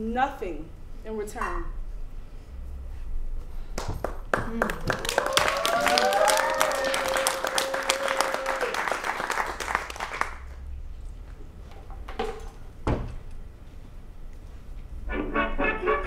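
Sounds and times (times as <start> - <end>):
audience applauding: 3.8 - 10.6
person whooping: 4.6 - 8.8.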